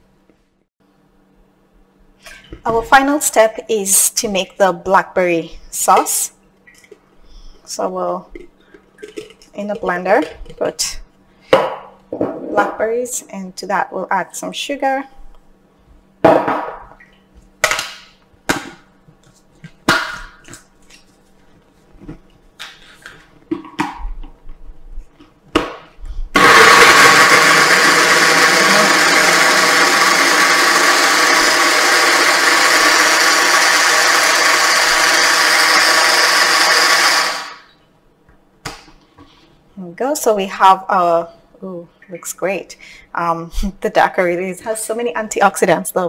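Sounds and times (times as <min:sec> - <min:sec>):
blender motor running: 0:26.4 - 0:37.7.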